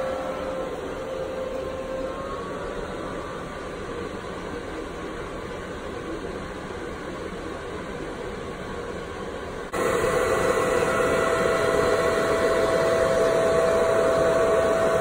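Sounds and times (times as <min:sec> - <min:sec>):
cooling fan air rush: 0:00.0 - 0:15.0
mid-pitched fan whine: 0:00.0 - 0:15.0.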